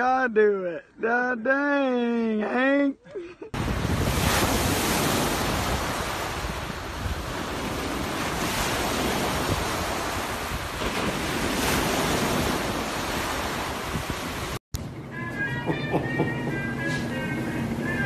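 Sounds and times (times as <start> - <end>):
ocean surf on beach: 3.5 - 14.6
wind buffeting microphone: 3.6 - 14.6
music: 14.9 - 18.0.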